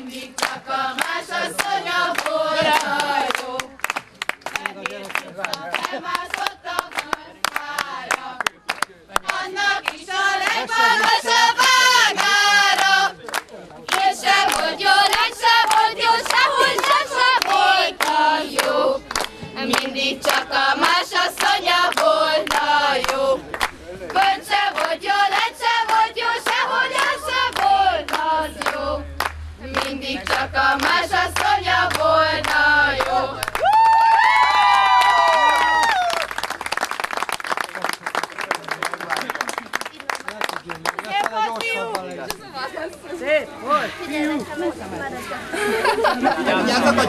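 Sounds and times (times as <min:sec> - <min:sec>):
women singing together: 0:00.0 - 0:03.8, 0:05.7 - 0:08.5, 0:09.2 - 0:13.2, 0:13.9 - 0:23.5, 0:24.1 - 0:33.7
rhythmic clapping: 0:00.0 - 0:42.4.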